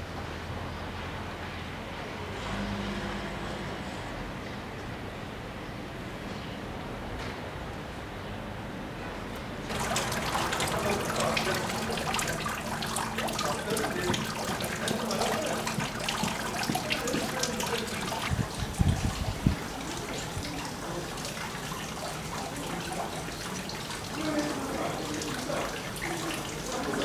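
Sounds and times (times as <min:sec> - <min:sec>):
fountain water splashing: 0:09.7 - 0:27.0.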